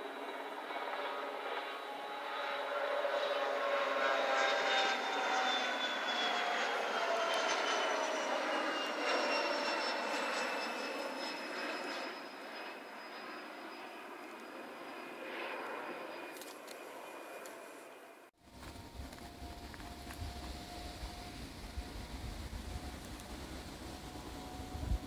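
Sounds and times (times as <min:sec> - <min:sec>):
jet taking off: 0:00.0 - 0:25.0.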